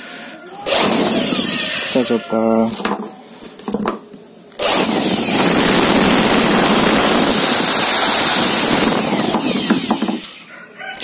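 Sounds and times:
electric blower whirring: 0.7s - 2.0s, 4.6s - 10.4s.

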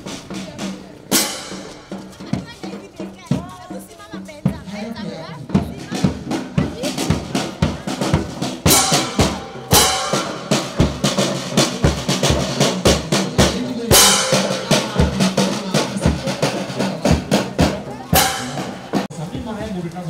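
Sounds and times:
marching drums beating: 0.0s - 19.1s
hand cymbals clashing: 1.1s - 2.4s, 8.2s - 16.7s, 18.1s - 19.1s.

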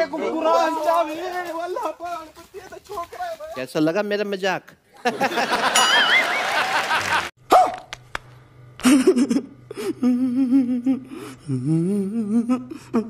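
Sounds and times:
low steady hum: 7.8s - 13.0s
man crying and wailing: 8.9s - 13.0s.

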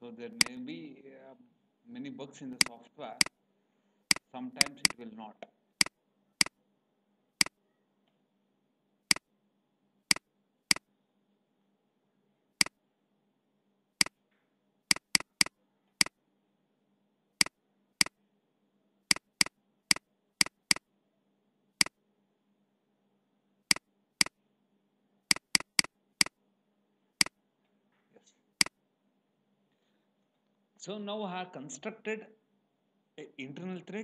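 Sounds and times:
faint steady hum: 0.0s - 31.0s
computer mouse clicking: 2.6s - 3.3s, 4.1s - 5.0s, 14.9s - 16.2s, 19.1s - 20.8s, 25.3s - 26.4s.

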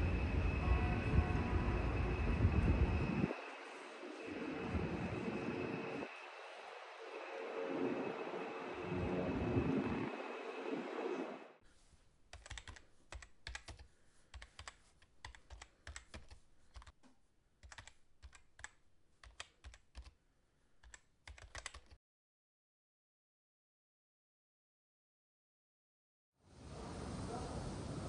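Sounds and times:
computer keyboard typing: 12.3s - 17.0s, 17.6s - 20.2s, 20.8s - 22.0s.

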